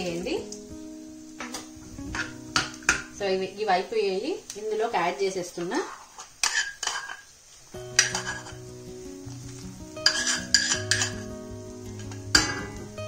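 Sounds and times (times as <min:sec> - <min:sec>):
soft background music: 0:00.0 - 0:05.6, 0:07.7 - 0:13.0
ghee sizzling: 0:00.0 - 0:13.0
metal spoon scraping a pan: 0:05.6 - 0:07.3, 0:07.9 - 0:08.7, 0:10.0 - 0:11.3, 0:11.9 - 0:12.8.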